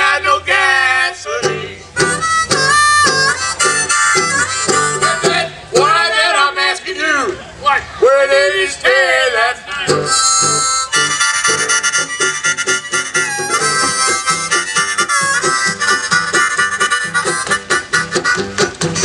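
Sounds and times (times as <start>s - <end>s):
plucked banjo rhythm: 1.4s - 6.4s, 9.9s - 19.0s
brass horn melody: 10.1s - 18.6s.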